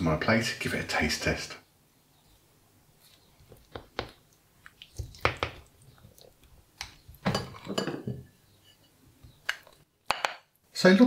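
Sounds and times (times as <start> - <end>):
spoon scooping wet food: 3.0 - 7.8.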